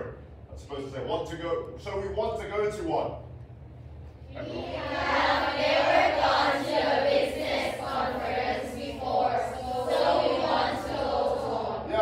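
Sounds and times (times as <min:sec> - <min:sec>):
students reading aloud in unison: 0:04.3 - 0:12.0.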